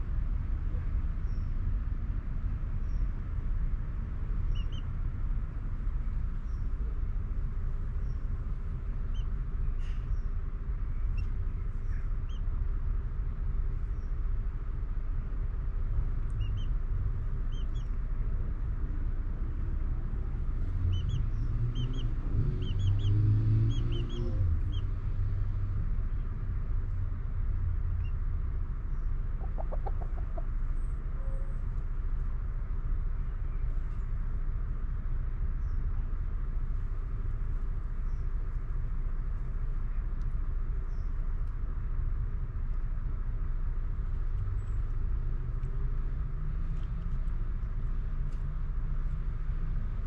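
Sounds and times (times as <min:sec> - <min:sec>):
bird chirps: 0:20.9 - 0:24.9.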